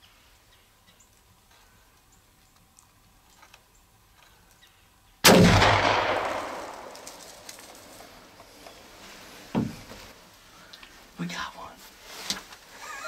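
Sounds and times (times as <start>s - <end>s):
gunshot: 5.2s - 7.4s.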